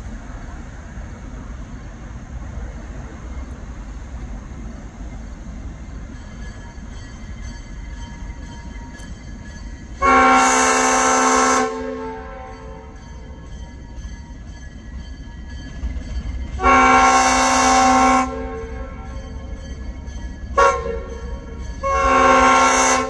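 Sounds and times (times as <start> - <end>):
locomotive horn blast: 9.9 - 13.4, 16.6 - 19.6, 20.5 - 23.0.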